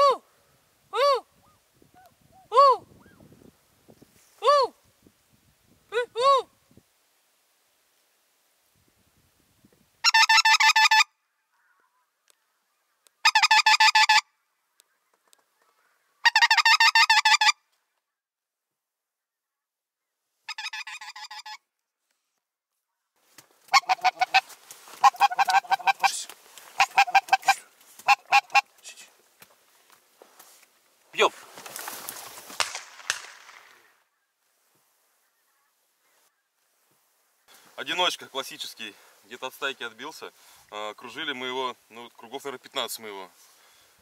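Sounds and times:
goose call honks: 10.0s - 12.1s, 13.2s - 14.3s, 16.2s - 17.6s, 23.7s - 29.0s.

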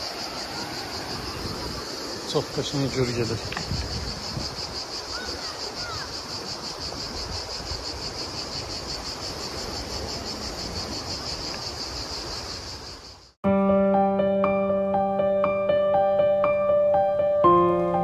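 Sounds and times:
insects trilling: 0.0s - 13.4s
piano music: 13.4s - 18.0s.

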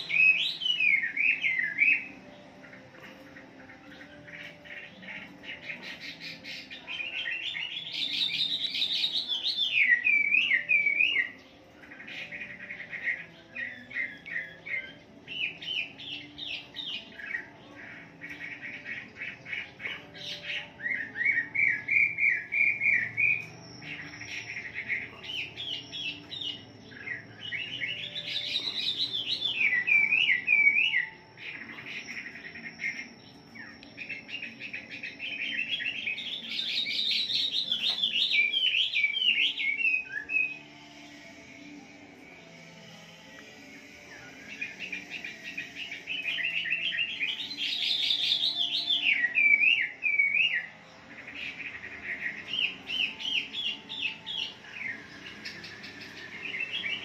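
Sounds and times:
bird singing whistled phrases: 0.0s - 2.2s, 6.2s - 11.4s, 20.6s - 40.6s, 44.2s - 50.7s.

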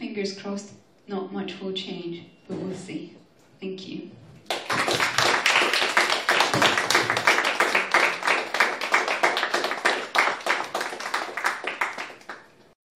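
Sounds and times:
audience applauding: 4.5s - 12.6s.

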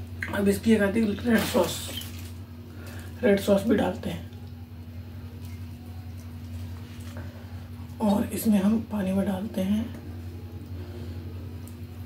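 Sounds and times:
low electrical hum: 0.0s - 12.0s
faint handling sounds: 5.4s - 8.0s.

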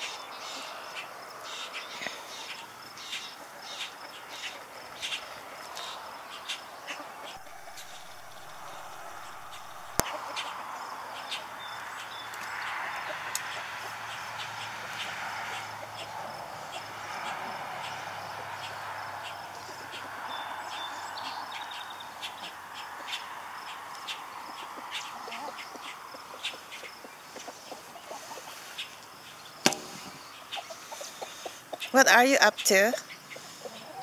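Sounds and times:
steady background noise: 0.0s - 33.7s
small birds chirping: 0.0s - 34.0s
chickens scratching and pecking: 2.1s - 10.6s.

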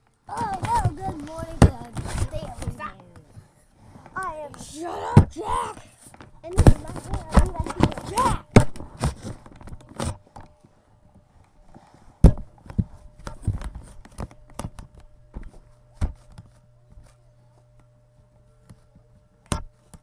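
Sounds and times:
faint steady hum: 0.0s - 20.0s
camera handling knocks and bumps: 6.1s - 10.5s, 12.2s - 16.5s.

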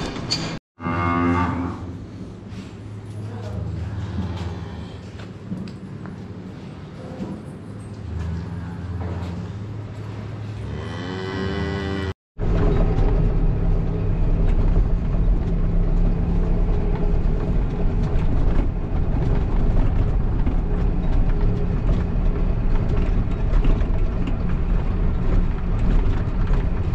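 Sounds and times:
cab rattling and knocking: 12.4s - 26.9s
tractor engine running: 12.4s - 26.9s.

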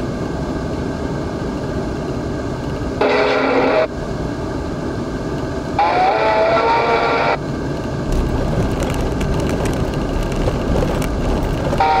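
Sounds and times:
car road and engine noise: 0.0s - 12.0s
tyres rumbling over steel deck: 8.0s - 12.0s.

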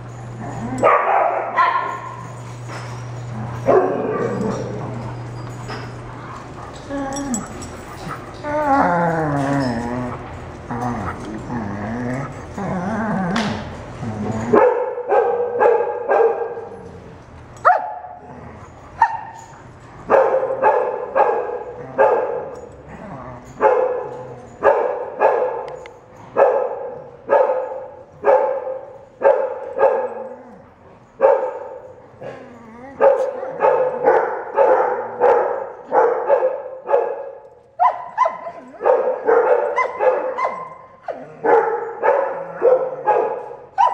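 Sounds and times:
dogs whining and yipping: 0.0s - 14.6s, 16.8s - 20.6s, 29.0s - 34.0s, 37.8s - 43.0s
dog barking: 0.8s - 2.1s, 14.6s - 16.7s, 17.6s - 18.2s, 20.1s - 22.5s, 23.6s - 25.8s, 26.4s - 30.2s, 31.2s - 31.8s, 33.0s - 43.9s.

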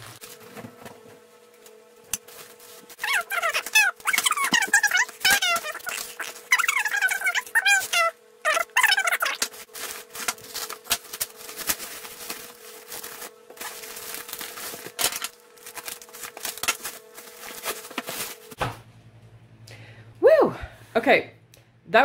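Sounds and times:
faint steady hum: 0.0s - 22.0s
scissors snipping plastic bag: 2.1s - 18.5s
plastic crinkling and rustling: 2.2s - 18.6s.

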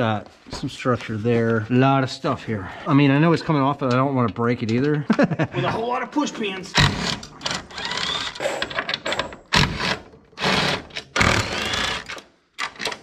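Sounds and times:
cordless drill motor whining: 7.0s - 8.5s, 10.4s - 12.1s.

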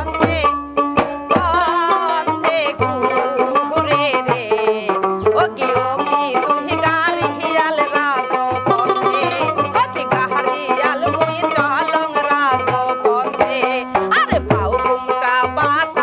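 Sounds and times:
drum beat: 0.0s - 1.9s
plucked lute melody: 0.0s - 16.0s
woman singing: 0.0s - 16.0s.

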